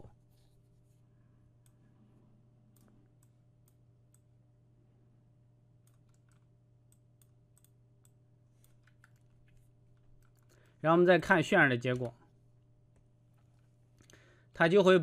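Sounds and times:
low electrical hum: 0.0 - 15.0
computer mouse clicks: 2.7 - 4.3, 5.8 - 10.7.

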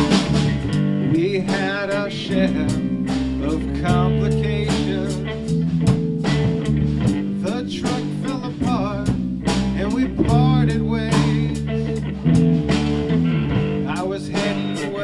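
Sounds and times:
sustained low notes: 0.0 - 14.9
bending electric guitar notes: 0.0 - 15.0
drum strokes: 0.0 - 15.0.

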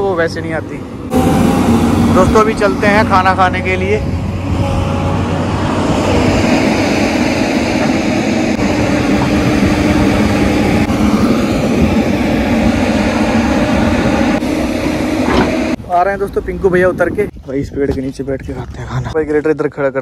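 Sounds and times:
excavator diesel engine droning: 0.0 - 17.3
steady held tone: 1.1 - 15.9.

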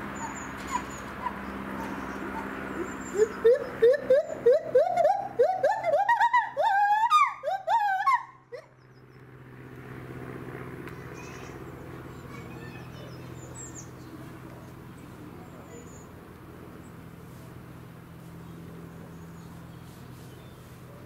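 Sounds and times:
gibbon whooping calls: 0.2 - 8.7.

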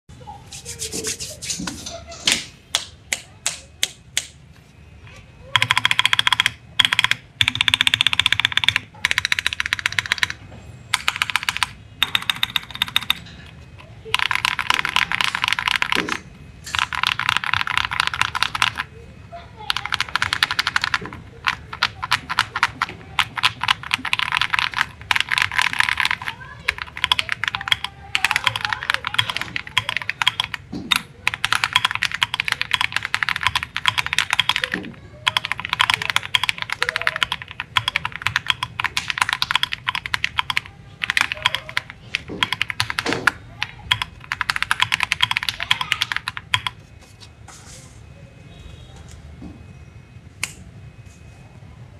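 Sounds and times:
mechanical keyboard typing: 5.4 - 19.0, 19.6 - 46.8.

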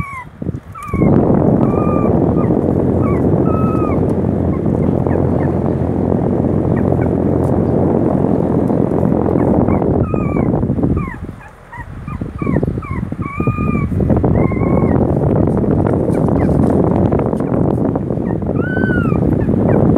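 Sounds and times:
puppies squeaking and whimpering: 0.0 - 5.6, 9.4 - 15.0, 15.9 - 16.8, 18.2 - 19.8
loud even rushing noise: 0.8 - 19.9.

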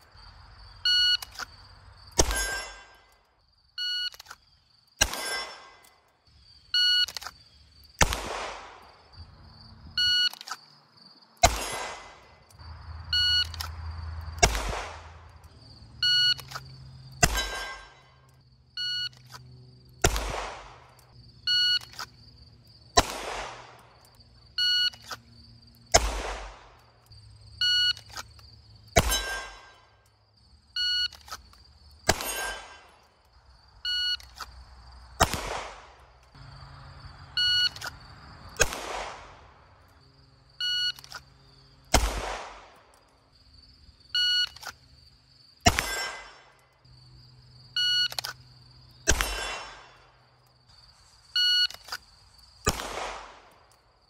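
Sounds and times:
pistol shot cracking and echoing: 2.2 - 2.9, 5.0 - 5.8, 8.0 - 8.9, 11.4 - 12.3, 14.4 - 15.2, 17.2 - 18.0, 20.0 - 20.9, 23.0 - 23.8, 25.9 - 26.8, 29.0 - 29.7, 35.2 - 36.0, 38.6 - 39.6, 41.9 - 42.8, 45.6 - 46.5, 49.1 - 50.0, 52.6 - 53.6.

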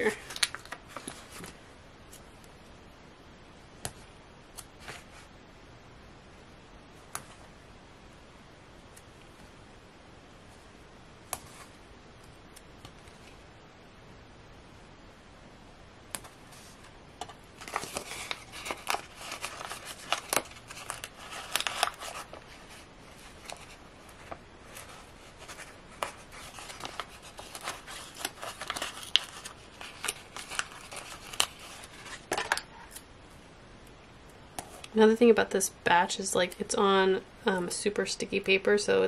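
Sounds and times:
paper rustling and crinkling: 0.0 - 2.2, 16.2 - 33.0.

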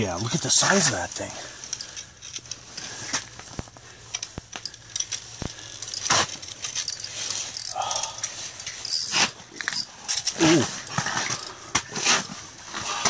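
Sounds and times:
fishing reel clicking and rattling: 4.1 - 9.9, 11.3 - 11.5.

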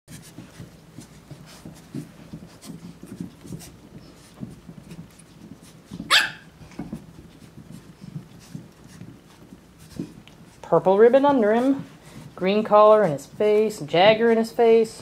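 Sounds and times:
puppy yelping: 6.1 - 6.5.

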